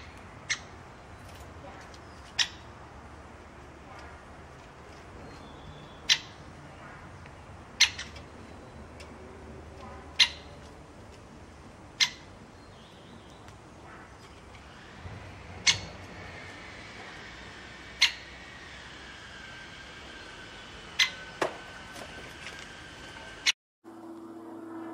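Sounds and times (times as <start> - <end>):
woodpecker sharp calls: 0.0 - 1.0, 2.0 - 2.9, 5.2 - 6.6, 7.2 - 9.1, 10.1 - 10.7, 11.9 - 14.1, 15.6 - 16.1, 17.8 - 18.5, 20.5 - 21.5.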